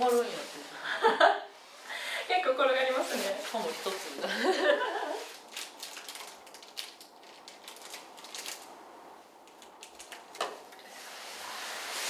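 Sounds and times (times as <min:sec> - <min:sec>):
plastic wrapper crinkling: 0:05.2 - 0:08.8, 0:09.4 - 0:10.8.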